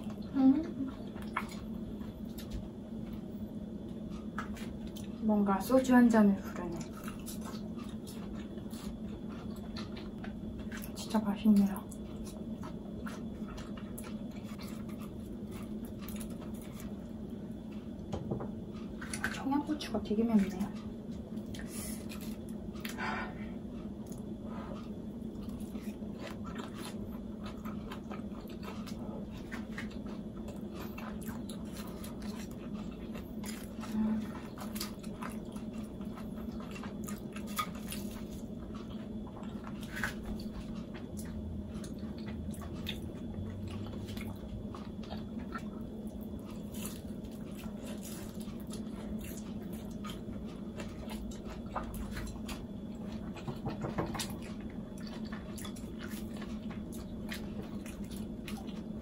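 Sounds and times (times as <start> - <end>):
steady low hum: 0.0 - 59.0
biting and chewing food: 0.9 - 5.2, 6.5 - 19.5, 20.3 - 59.0.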